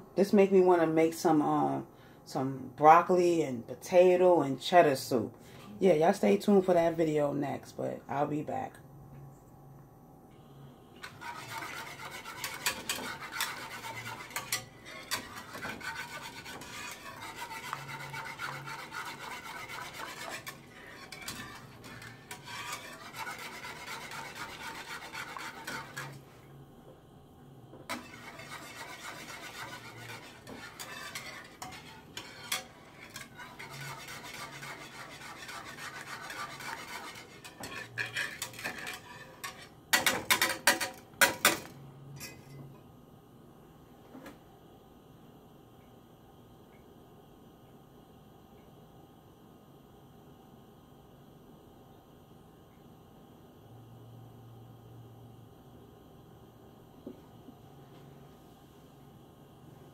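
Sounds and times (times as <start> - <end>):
whisk clinking against pan: 11.0 - 26.2, 27.9 - 41.5
whisk scraping pan: 11.0 - 26.4, 27.9 - 41.5.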